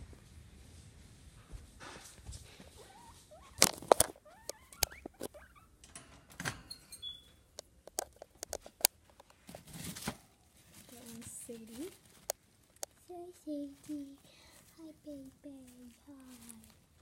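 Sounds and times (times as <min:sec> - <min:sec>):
guinea pigs squeaking: 0:02.7 - 0:05.8
sharp clicks and knocks: 0:03.6 - 0:06.7, 0:07.6 - 0:09.4.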